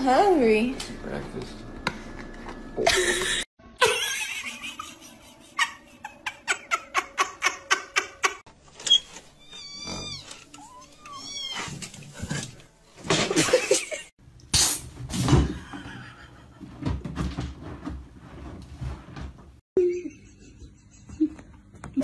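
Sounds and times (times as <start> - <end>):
cat meowing: 9.4 - 11.7
rustling and knocks: 15.1 - 19.6.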